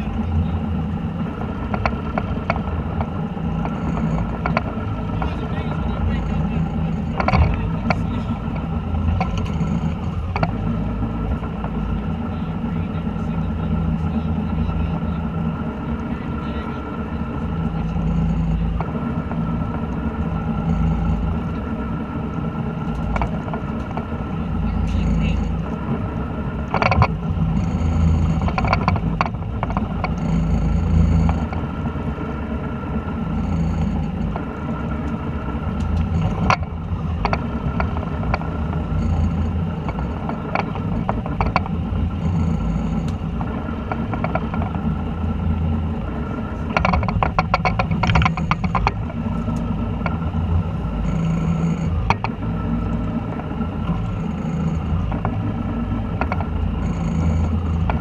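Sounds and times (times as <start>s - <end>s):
boat engine droning: 0.0s - 58.0s
fishing reels clicking: 0.1s - 10.8s, 26.6s - 31.8s, 33.2s - 34.4s, 35.0s - 45.9s, 46.7s - 58.0s.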